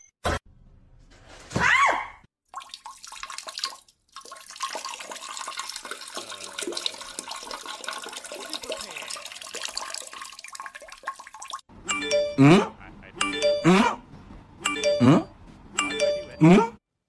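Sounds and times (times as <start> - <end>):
toilet flushing water: 2.6 - 11.6.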